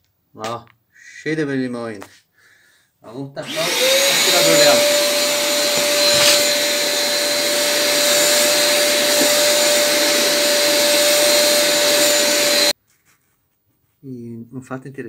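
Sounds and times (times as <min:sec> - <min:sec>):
vacuum cleaner running: 0:03.4 - 0:12.8.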